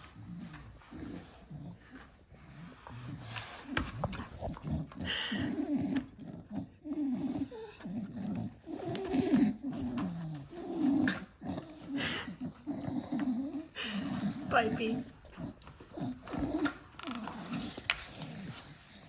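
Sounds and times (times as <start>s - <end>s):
dog grunting: 4.2s - 19.0s.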